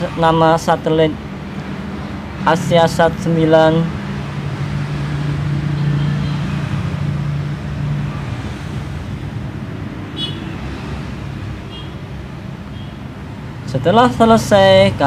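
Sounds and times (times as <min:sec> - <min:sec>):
rushing background noise: 0:00.0 - 0:15.0.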